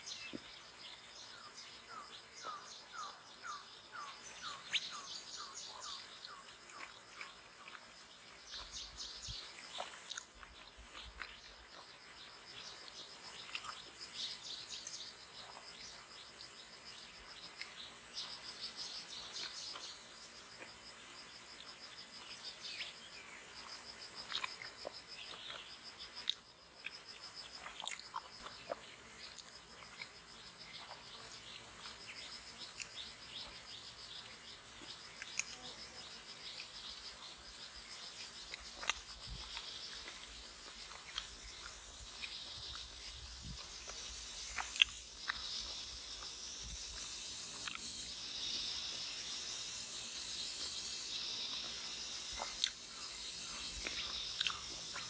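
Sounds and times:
bird chirps: 0.0 - 6.9
high insect whine: 0.0 - 55.0.

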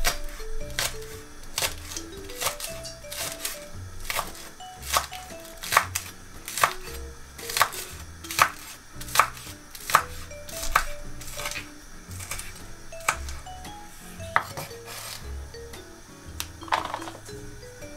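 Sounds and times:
knife chopping on cutting board: 0.0 - 1.0, 1.6 - 13.4.

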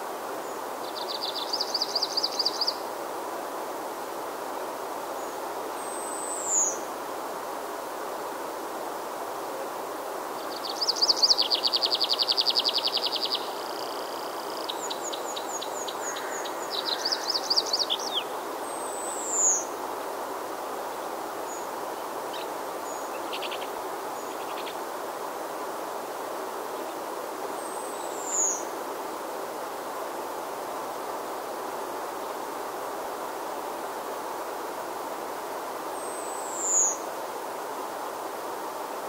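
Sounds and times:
steady background hiss: 0.0 - 39.0
songbirds singing: 10.4 - 19.8, 21.0 - 24.8, 27.6 - 28.7.

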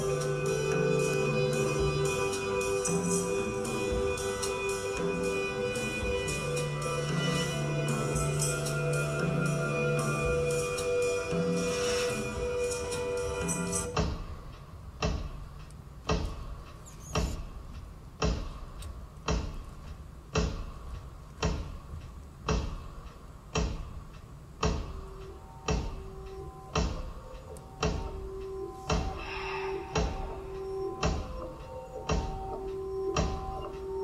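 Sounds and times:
low held tone: 0.0 - 14.0
clock-like tick: 14.0 - 29.2.

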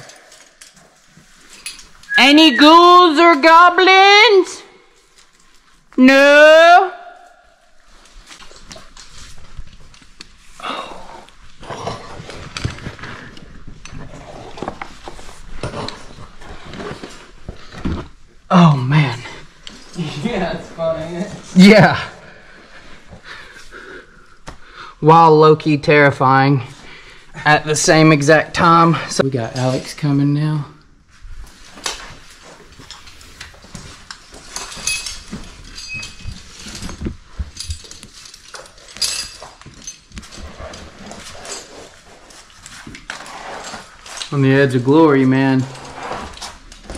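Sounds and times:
hard breathing: 22.2 - 25.0
climbing hardware clinking: 32.7 - 42.0.

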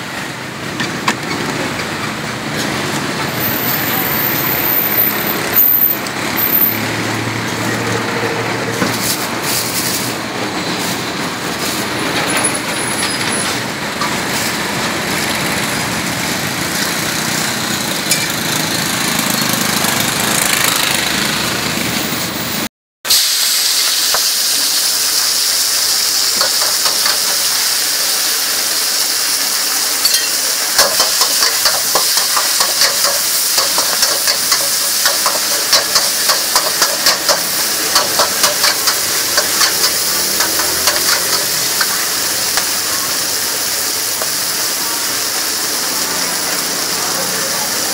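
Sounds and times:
street traffic noise: 0.0 - 47.9
stir-frying hiss: 23.1 - 47.9
metal spatula scraping wok: 30.0 - 42.9.

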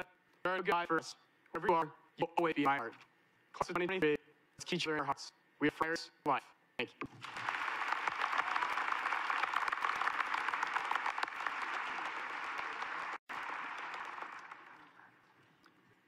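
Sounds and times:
large audience applauding: 7.1 - 15.2.

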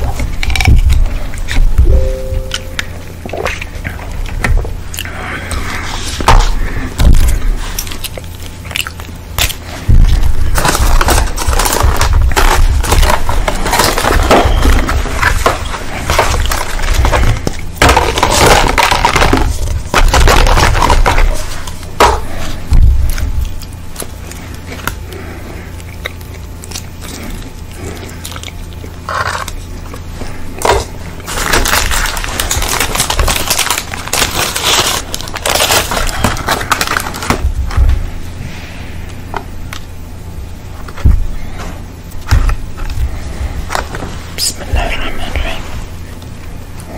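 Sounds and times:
paper wrapping crinkling: 0.0 - 38.1
plastic sachet tearing: 30.6 - 37.4.

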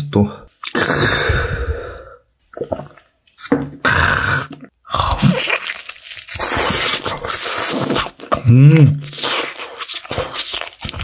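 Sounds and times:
person chewing with wet mouth noises: 2.5 - 11.0.

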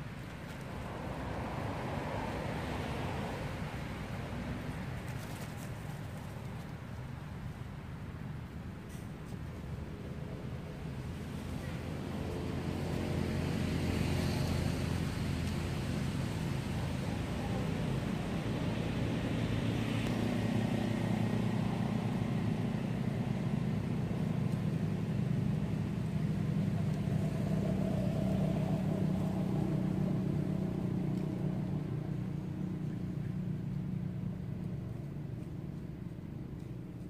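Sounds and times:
distant vehicle engine droning: 10.0 - 37.0.

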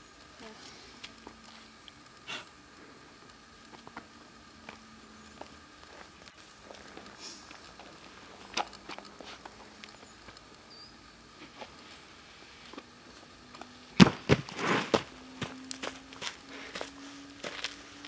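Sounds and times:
shoes and hands scuffing rock: 14.0 - 17.8
scraping rustle: 14.4 - 15.1.

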